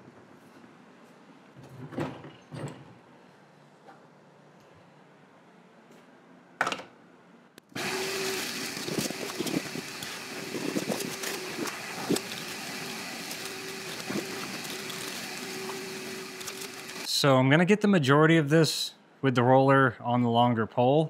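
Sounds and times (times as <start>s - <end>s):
shop vacuum running: 7.7s - 17.1s
debris rattling up a hose: 7.8s - 17.1s.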